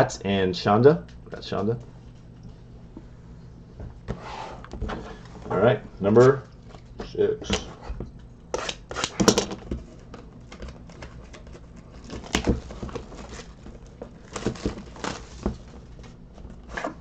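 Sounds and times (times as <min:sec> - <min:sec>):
plastic wrap crinkling and tearing: 0:10.6 - 0:16.2.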